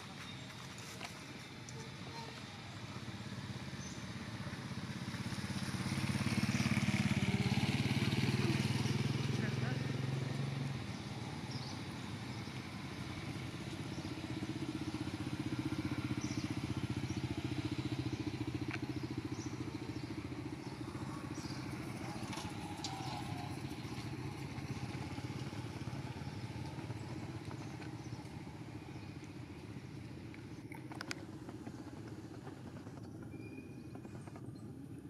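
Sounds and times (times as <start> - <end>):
motor engine droning: 0.0 - 35.0.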